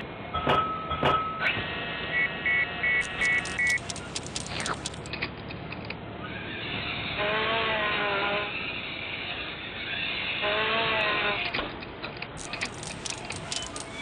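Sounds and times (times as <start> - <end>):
short electronic beeps: 2.2 - 3.9
blade chopping with clicks: 3.0 - 5.3
rapid mechanical clatter: 3.0 - 5.4, 12.4 - 14.0.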